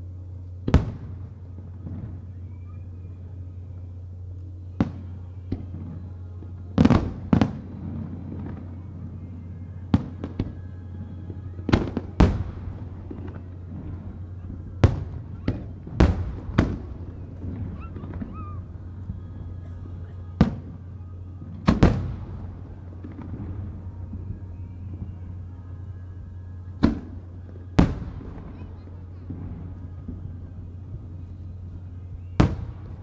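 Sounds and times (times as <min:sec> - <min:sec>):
steady low hum: 0:00.0 - 0:33.0
firework shells booming: 0:21.6 - 0:23.8.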